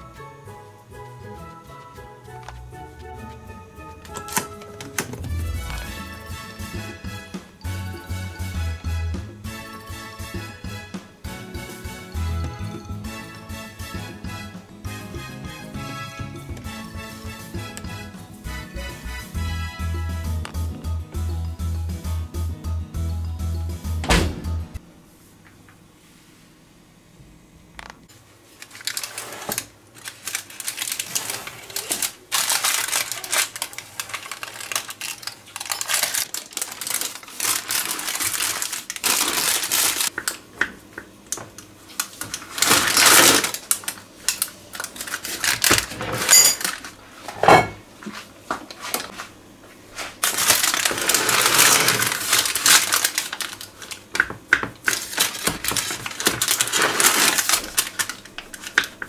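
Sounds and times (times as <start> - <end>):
crunching and crackling food: 27.9 - 47.2, 50.0 - 59.0.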